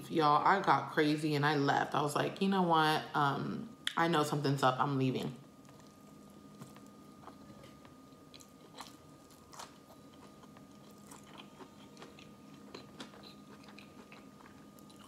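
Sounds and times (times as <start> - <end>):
low steady hum: 0.0 - 15.0
chewing with mouth clicks: 5.6 - 15.0.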